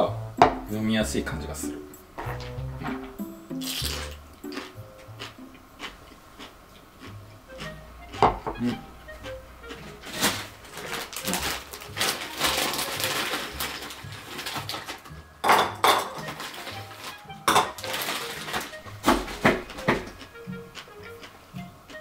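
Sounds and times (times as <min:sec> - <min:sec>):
soft background music: 0:00.0 - 0:22.0
ice cubes clinking on glass: 0:03.6 - 0:04.2, 0:11.1 - 0:18.8
plastic bag crinkling: 0:03.6 - 0:04.2, 0:09.9 - 0:20.2.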